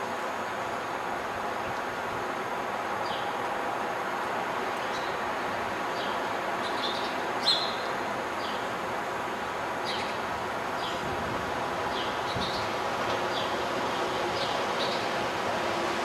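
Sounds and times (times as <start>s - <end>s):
small birds chirping: 6.0s - 8.7s, 9.8s - 11.0s.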